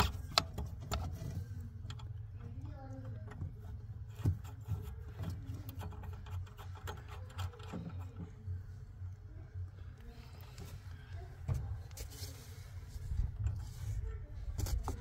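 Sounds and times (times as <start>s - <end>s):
steady low hum: 0.0s - 15.0s
metal tool clicking and scraping: 4.1s - 8.2s.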